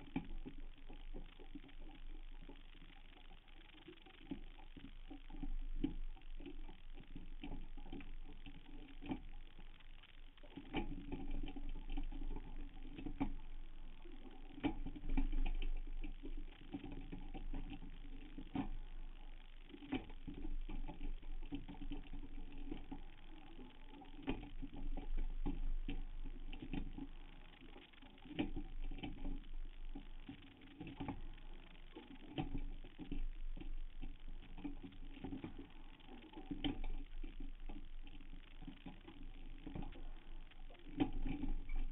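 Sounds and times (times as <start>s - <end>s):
low steady hum: 0.0s - 41.9s.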